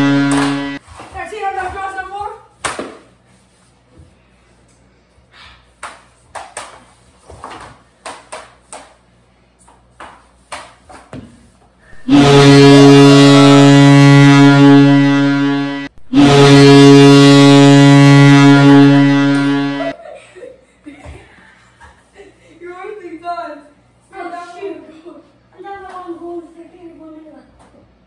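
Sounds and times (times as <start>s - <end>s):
goal horn blasts: 0.0s - 0.8s, 11.9s - 20.0s.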